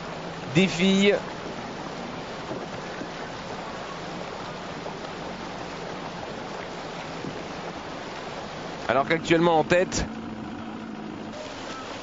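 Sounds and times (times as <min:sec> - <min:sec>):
faint motorboat engine hum: 0:00.0 - 0:12.0
open water rushing: 0:00.0 - 0:12.0
wind: 0:00.0 - 0:12.0.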